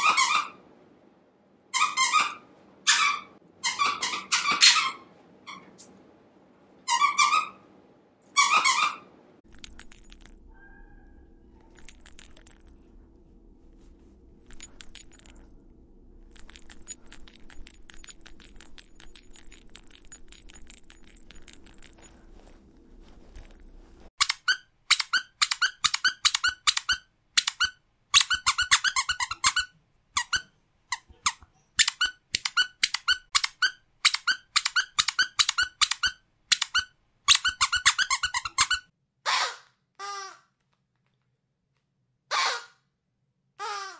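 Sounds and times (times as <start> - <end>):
dog squeaky toys squeaking: 0.0 - 0.6, 1.8 - 5.6, 6.9 - 7.6, 8.4 - 9.0, 24.2 - 40.3
faint low hum: 9.2 - 24.1.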